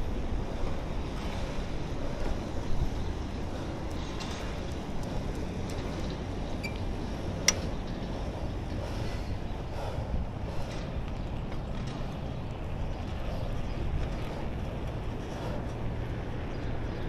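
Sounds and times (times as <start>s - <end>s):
road noise: 0.0s - 17.0s
wind rush on microphone: 0.0s - 17.0s.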